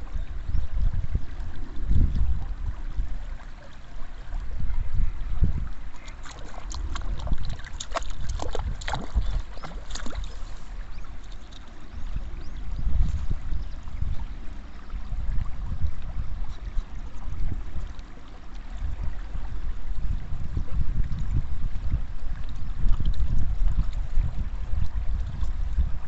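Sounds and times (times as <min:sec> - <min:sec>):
running stream: 0:00.0 - 0:26.0
wind buffeting microphone: 0:00.0 - 0:26.0
duck splashing in water: 0:05.9 - 0:10.5.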